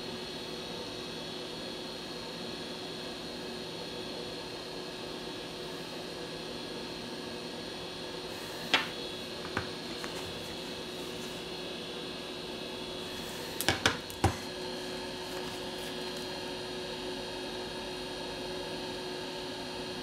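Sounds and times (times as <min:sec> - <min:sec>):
electrical hum: 0:00.0 - 0:20.0
fan-like hiss: 0:05.3 - 0:17.0.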